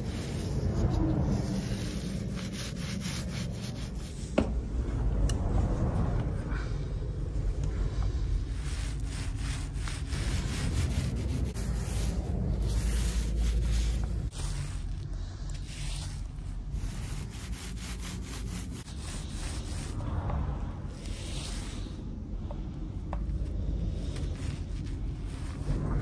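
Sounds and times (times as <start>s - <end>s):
paint roller scraping concrete: 8.6s - 15.1s.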